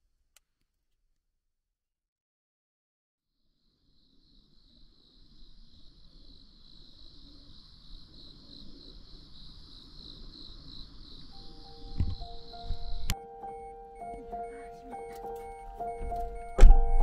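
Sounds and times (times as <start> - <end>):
insects trilling: 3.4 - 16.9.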